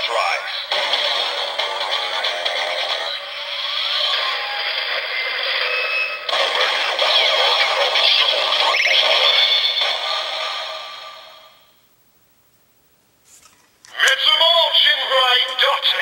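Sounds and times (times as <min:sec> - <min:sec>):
tinny toy speaker music and effects: 0:00.0 - 0:11.7, 0:13.9 - 0:16.0.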